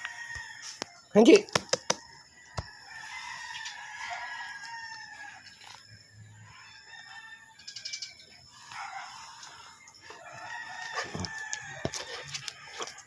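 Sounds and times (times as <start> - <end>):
fowl crowing: 2.8 - 5.6, 8.6 - 13.0.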